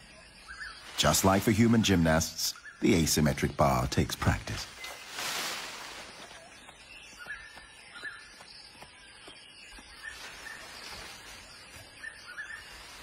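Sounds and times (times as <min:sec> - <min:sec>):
faint forest ambience: 0:00.0 - 0:13.0
high bird chirps: 0:04.6 - 0:13.0.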